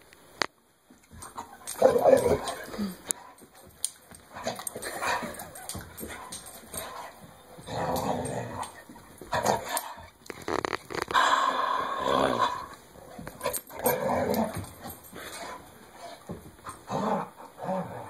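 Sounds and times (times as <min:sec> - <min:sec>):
dog growling in play: 0:01.8 - 0:03.2, 0:07.6 - 0:10.1, 0:10.9 - 0:18.0.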